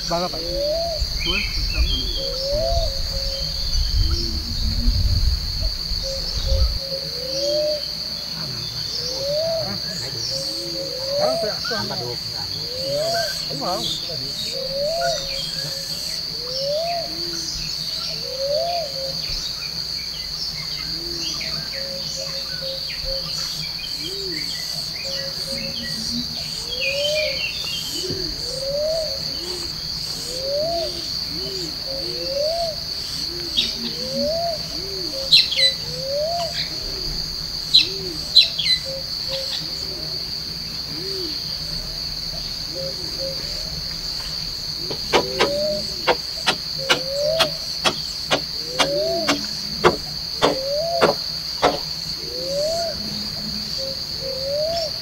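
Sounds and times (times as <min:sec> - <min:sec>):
high-pitched insect drone: 0:00.0 - 0:55.0
low rising and falling call: 0:44.8 - 0:55.0
sharp quick chirps: 0:44.9 - 0:51.9.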